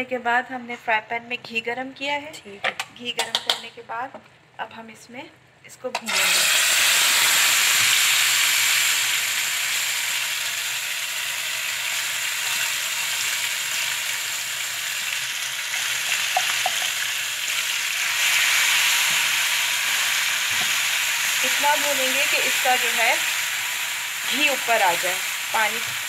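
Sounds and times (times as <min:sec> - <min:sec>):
paste sizzling in frying pan: 0:06.1 - 0:26.0.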